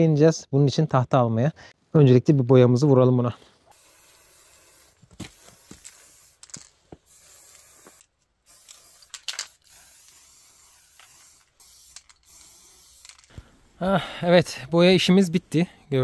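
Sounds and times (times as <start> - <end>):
spray paint can hissing: 3.7 - 13.4.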